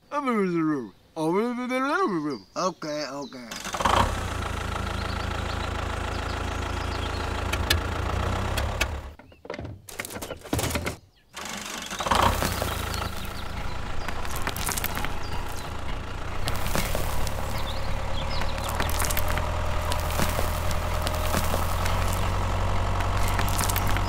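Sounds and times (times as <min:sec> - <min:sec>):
toy tractor motor humming: 0:11.4 - 0:24.0.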